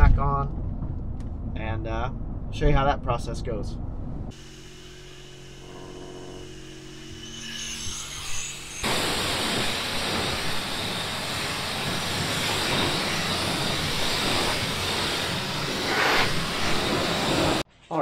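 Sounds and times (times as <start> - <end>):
low machine hum: 0.0 - 17.6
loud rushing hiss: 4.3 - 5.7, 6.4 - 17.6.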